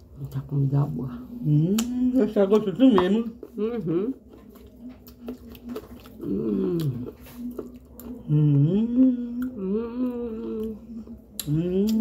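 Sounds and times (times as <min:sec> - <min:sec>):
person humming: 0:03.6 - 0:04.2, 0:06.2 - 0:07.2, 0:08.2 - 0:12.0.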